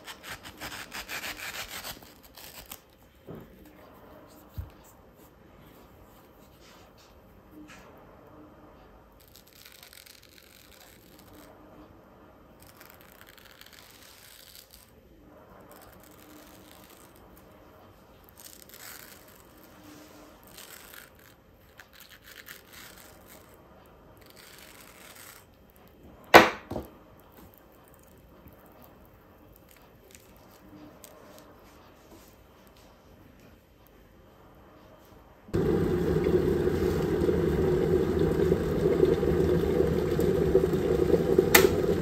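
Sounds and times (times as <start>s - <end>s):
knife scraping mango: 0.0s - 2.9s.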